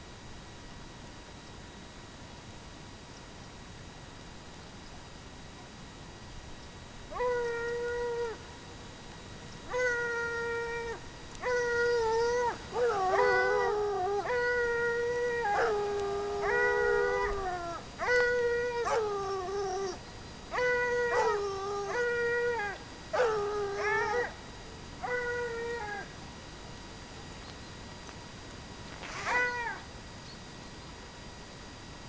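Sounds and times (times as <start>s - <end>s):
hounds baying: 9.7s - 24.4s.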